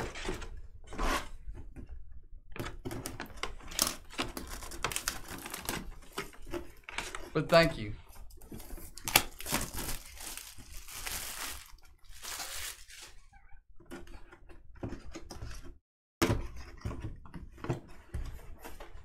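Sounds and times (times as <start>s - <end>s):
packaging rustling and scraping: 3.7s - 7.3s, 8.2s - 13.3s.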